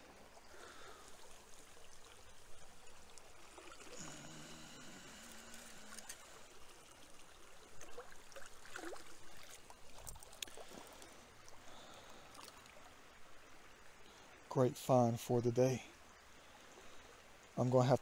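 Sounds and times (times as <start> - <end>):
water splashing: 0.0 - 13.0
creek water trickling: 0.0 - 18.0.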